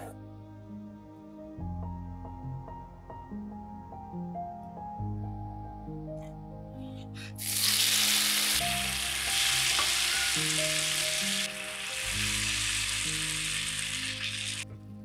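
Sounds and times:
tomatoes sizzling in oil: 7.4 - 14.6.

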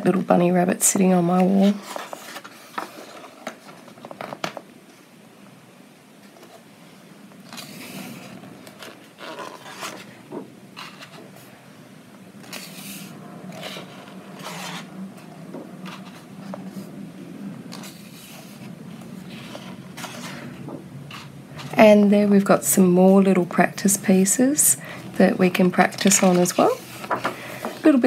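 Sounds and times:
book pages turning: 1.4 - 4.7, 7.4 - 11.5, 12.4 - 16.9, 17.7 - 21.8, 25.4 - 28.0.

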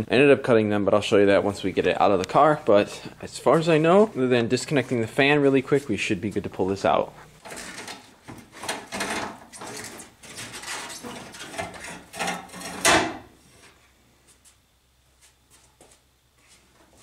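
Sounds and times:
plastic and metal clattering: 7.4 - 13.2.

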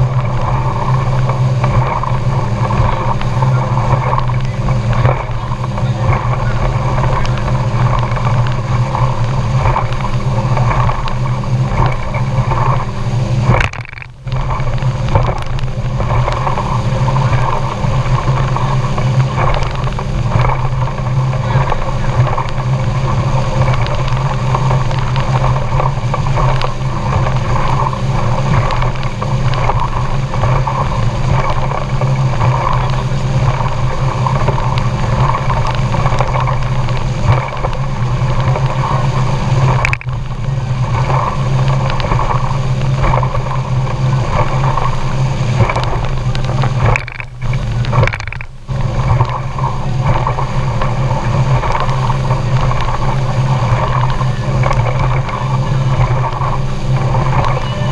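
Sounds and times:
outboard motor running: 0.0 - 57.9
water noise: 0.0 - 57.9
wind: 0.0 - 57.9.

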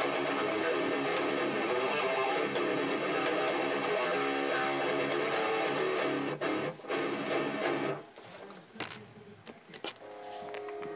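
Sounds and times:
distorted electric guitar riff: 0.0 - 8.0
guitar string noises: 0.0 - 8.0.

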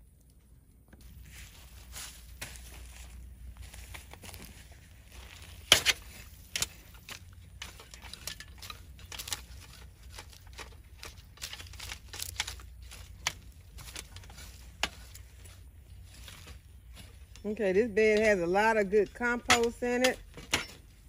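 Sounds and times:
metal rake scraping soil: 1.1 - 21.0.

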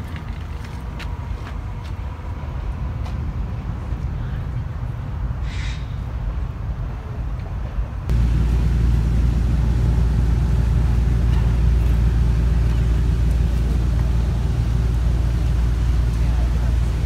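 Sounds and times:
road traffic rumble: 0.0 - 17.0
faint hum: 8.1 - 17.0.

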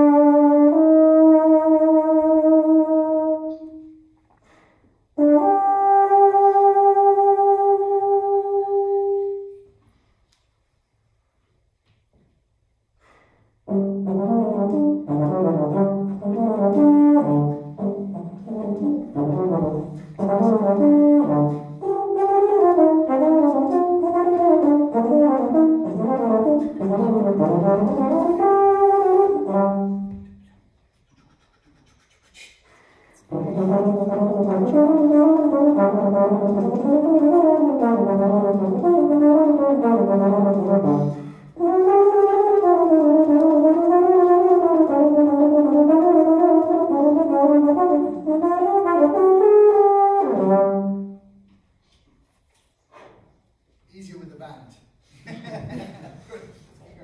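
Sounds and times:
solo euphonium melody: 0.0 - 4.2, 5.1 - 9.8, 13.6 - 30.5, 33.2 - 51.5.

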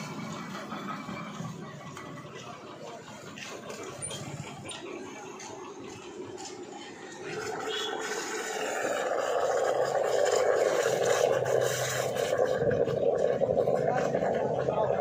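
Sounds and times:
steam wand hissing: 6.2 - 15.0.

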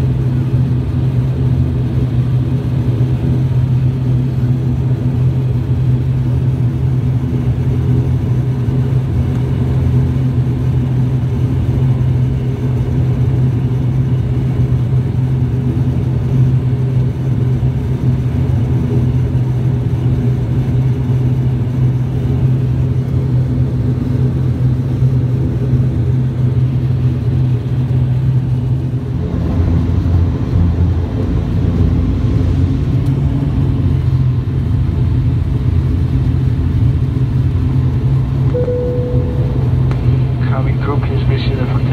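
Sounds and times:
turboprop engines droning: 0.0 - 41.9
rising tone: 38.5 - 40.4.

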